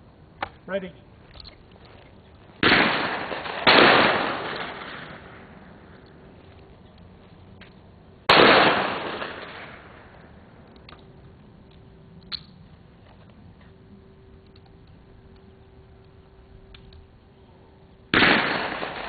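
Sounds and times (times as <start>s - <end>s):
shotgun shot: 2.6s - 5.5s, 8.3s - 9.9s, 18.1s - 19.0s.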